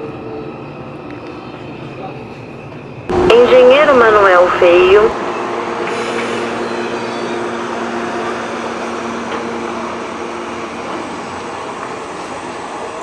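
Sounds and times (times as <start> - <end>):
electric train motor hum: 5.1 - 13.0.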